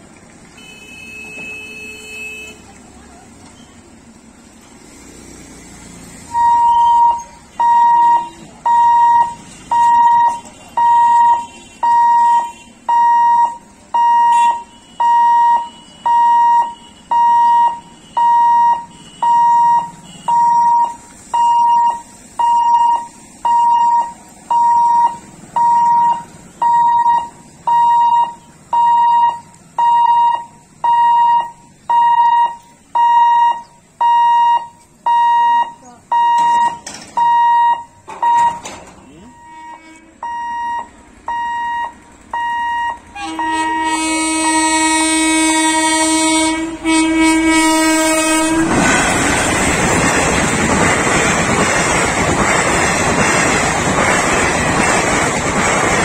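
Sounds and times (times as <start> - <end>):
level crossing warning beeps: 6.3 - 43.6.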